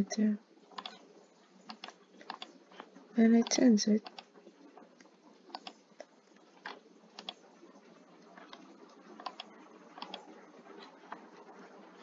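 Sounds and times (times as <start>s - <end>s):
mouse and keyboard clicks: 0.8s - 1.0s, 1.7s - 4.3s, 5.5s - 7.4s, 8.4s - 10.2s.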